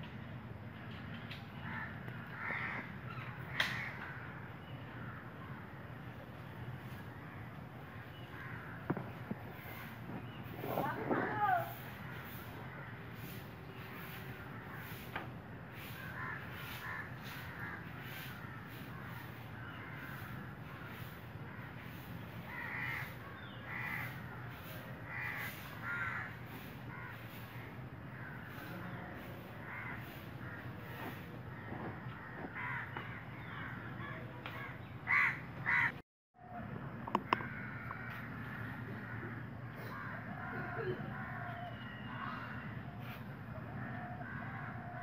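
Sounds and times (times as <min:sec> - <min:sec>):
crows cawing: 0:01.6 - 0:05.7, 0:06.9 - 0:36.0, 0:37.1 - 0:45.0.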